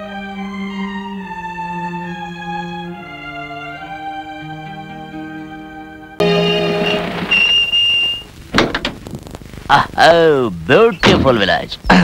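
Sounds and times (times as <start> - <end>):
slow sad music with held notes: 0.0 - 7.2.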